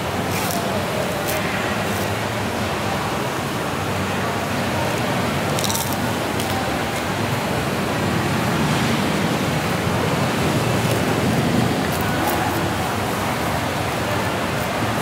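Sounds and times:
steady rushing noise: 7.1 - 15.0.

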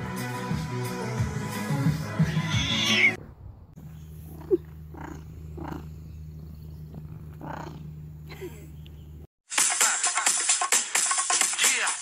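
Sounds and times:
music: 0.0 - 3.2, 9.5 - 12.0
cat purring: 3.9 - 8.3.

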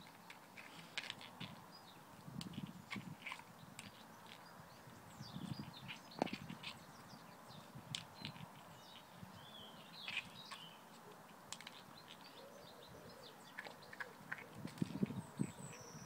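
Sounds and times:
birds chirping: 0.0 - 16.0
puppy mouthing egg on concrete: 13.4 - 15.8.

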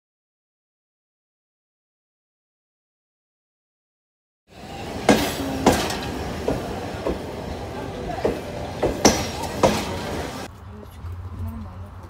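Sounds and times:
train wheels clacking over rail joints: 4.5 - 10.5
train rumble: 4.5 - 12.0.

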